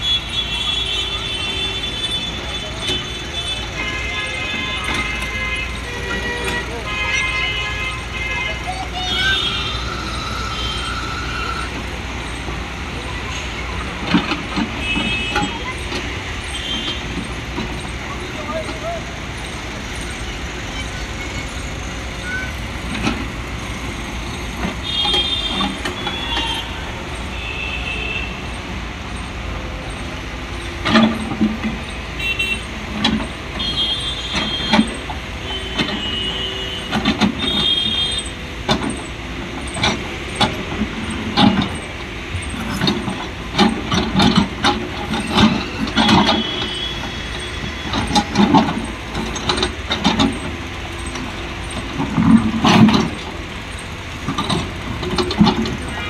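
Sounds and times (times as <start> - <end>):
excavator diesel engine: 0.0 - 56.0
high-pitched squeals: 7.3 - 14.8.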